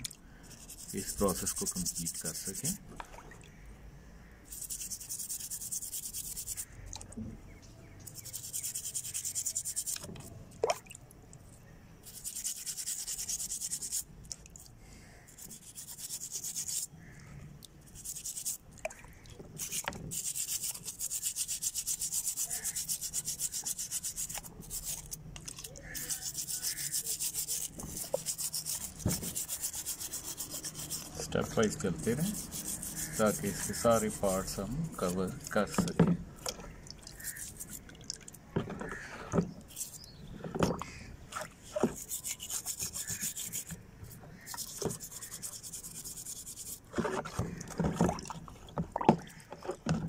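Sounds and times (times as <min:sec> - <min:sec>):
toothbrush scrubbing metal parts: 0:00.0 - 0:02.8, 0:04.5 - 0:06.8, 0:08.0 - 0:10.3, 0:12.0 - 0:16.9, 0:17.8 - 0:18.6, 0:19.6 - 0:36.0, 0:37.0 - 0:38.0, 0:39.7 - 0:40.2, 0:41.6 - 0:47.4.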